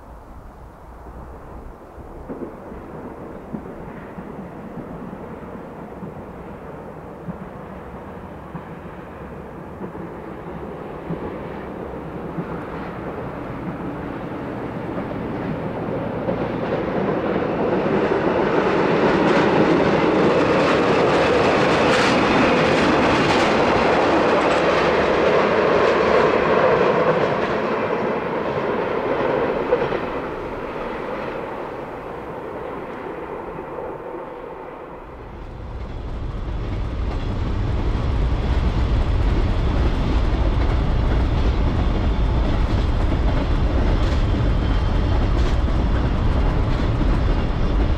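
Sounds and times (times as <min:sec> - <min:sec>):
diesel locomotive engine: 0:00.0 - 0:47.9
train wheels clattering on rails: 0:02.1 - 0:33.8, 0:35.0 - 0:47.9
low rumble: 0:35.0 - 0:47.9.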